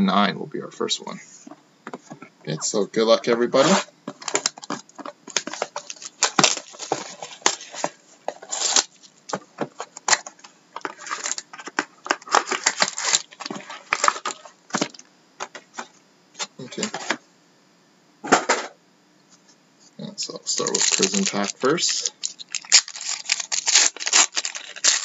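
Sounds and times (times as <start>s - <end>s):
foil packs crinkling: 3.6s - 15.0s, 20.4s - 25.0s
cardboard box tearing open: 12.4s - 13.4s, 22.5s - 25.0s.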